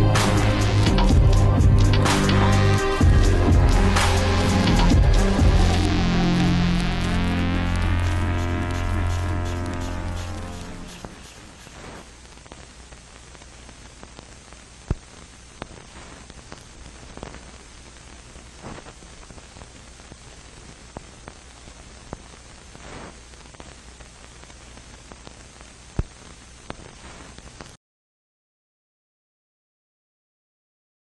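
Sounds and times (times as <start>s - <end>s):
low hum: 0.0s - 12.1s
static hiss: 0.0s - 27.8s
faint crackles: 6.0s - 27.8s.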